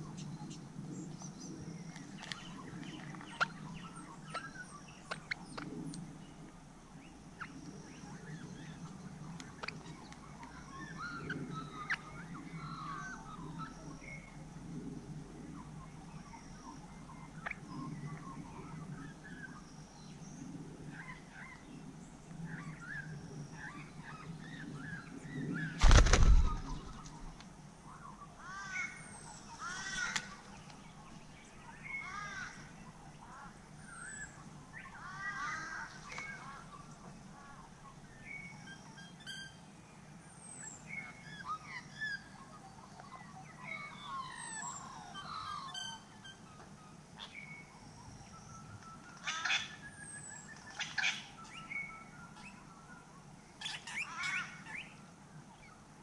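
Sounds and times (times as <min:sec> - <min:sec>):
bird chirps and calls: 0:40.5 - 0:46.6.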